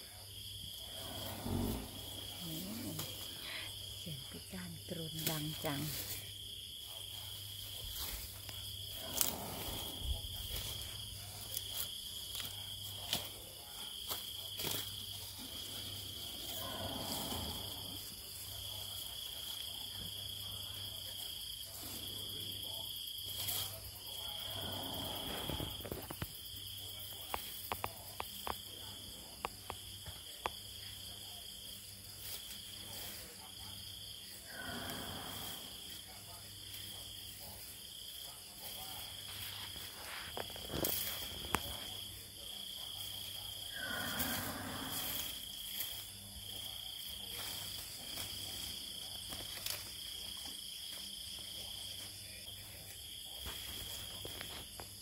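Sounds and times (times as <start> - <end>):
crickets chirping: 0.0 - 55.0
elephant snoring: 0.4 - 4.0, 8.1 - 11.6, 15.3 - 19.7, 23.9 - 26.2, 34.1 - 36.1, 43.3 - 46.1.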